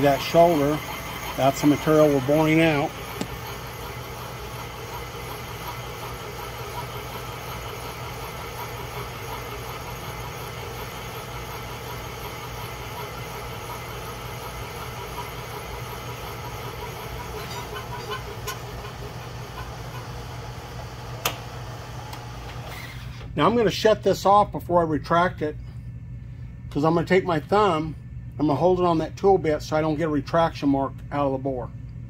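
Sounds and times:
milling machine cutting metal: 0.0s - 21.4s.

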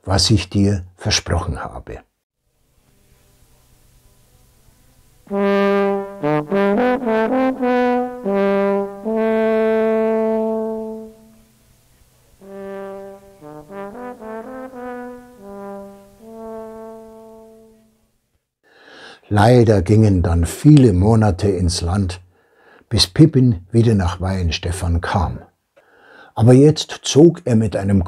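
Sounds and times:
brass melody: 3.7s - 18.0s.

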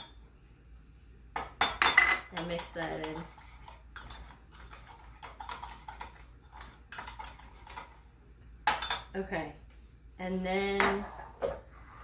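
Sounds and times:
spoon clinking and scraping in mug: 1.6s - 7.9s.

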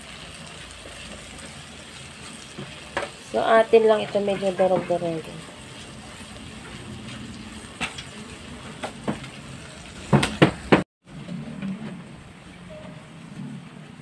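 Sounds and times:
onion and tomato sizzling in oil: 0.0s - 10.9s.

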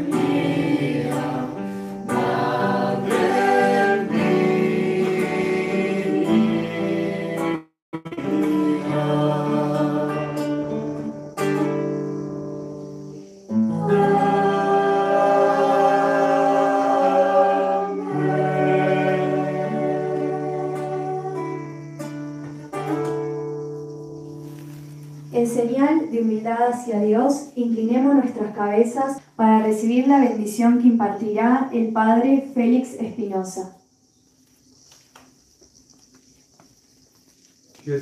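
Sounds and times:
voices singing a hymn: 0.0s - 11.2s, 13.5s - 21.8s
acoustic guitar: 0.0s - 33.6s.

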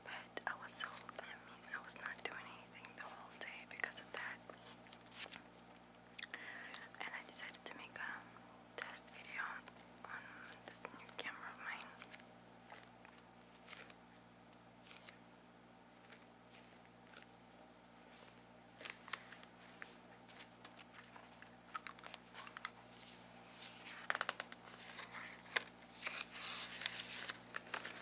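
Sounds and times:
paper crackling: 11.8s - 14.0s, 14.8s - 15.2s, 15.9s - 17.4s, 18.0s - 28.0s.

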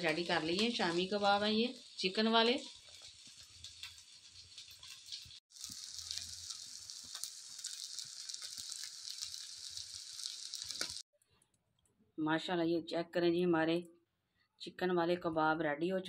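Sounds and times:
food sizzling in hot oil: 0.0s - 11.1s.

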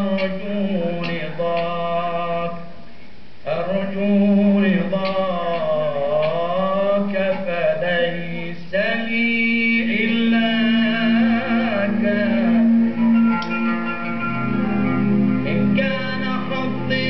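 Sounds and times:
man singing religious chant: 0.0s - 2.7s, 3.4s - 12.8s, 15.5s - 17.0s.

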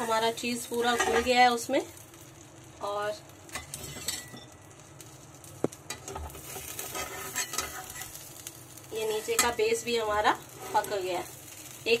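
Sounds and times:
metal spatula scraping frying pan: 0.0s - 1.4s, 5.9s - 8.2s, 9.0s - 9.6s, 10.4s - 11.1s
faint sizzling: 0.0s - 12.0s.

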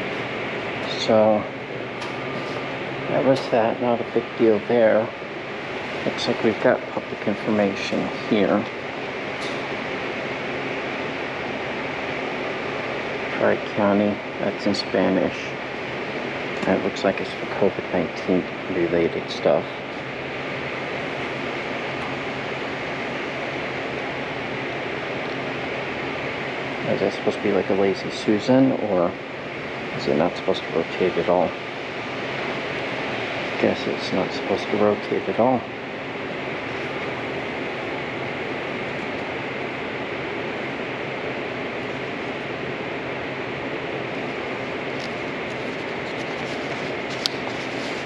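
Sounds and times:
steady rushing noise: 0.0s - 48.0s
ventilation air hiss: 0.0s - 48.0s.

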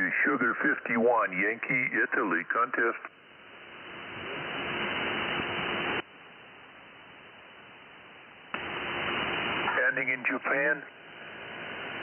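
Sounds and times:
radio static hiss: 0.0s - 6.3s, 7.0s - 11.0s.

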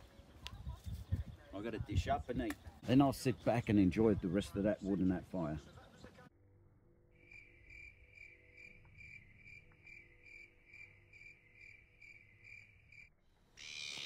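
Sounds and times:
cricket chirping: 7.1s - 14.0s.

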